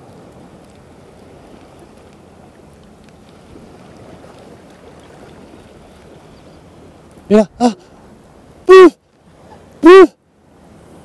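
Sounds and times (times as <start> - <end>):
faint ticks: 0.0 - 6.2
sea water lapping: 0.0 - 11.0.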